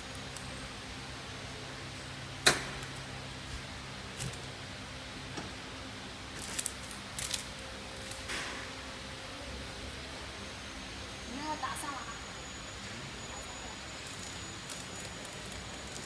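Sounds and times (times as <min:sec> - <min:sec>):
machine low hum: 0:00.0 - 0:16.0
plastic film crinkling: 0:06.4 - 0:08.2, 0:14.0 - 0:16.0.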